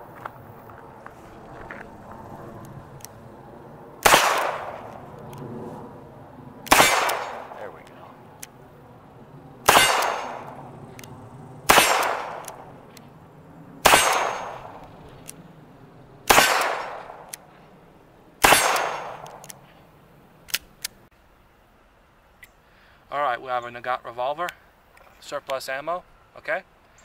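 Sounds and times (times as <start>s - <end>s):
revolver shots: 6.7s - 7.8s, 9.6s - 10.7s, 11.6s - 12.9s.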